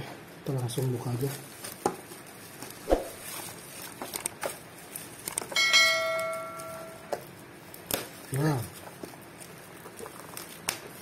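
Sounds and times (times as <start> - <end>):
bell chime: 5.6 - 7.0.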